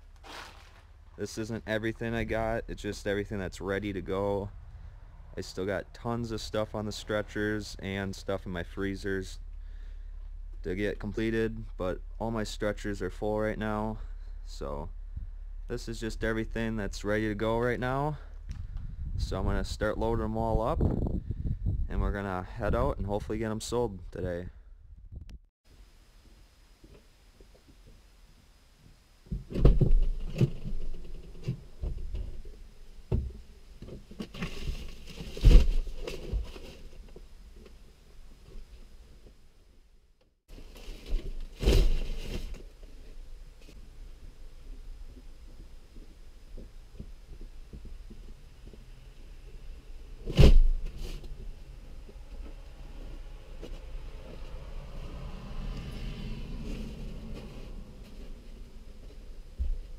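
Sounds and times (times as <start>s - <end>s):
low steady rumble: 0.0s - 59.9s
fur pelts rustling: 0.2s - 1.0s
knocks and thumps: 33.1s - 36.7s.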